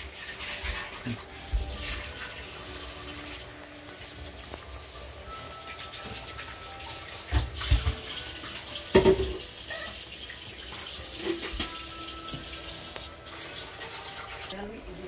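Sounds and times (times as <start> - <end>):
liquid boiling in a pot: 0.0 - 15.0
knocks and thumps: 7.3 - 8.1, 8.9 - 9.5.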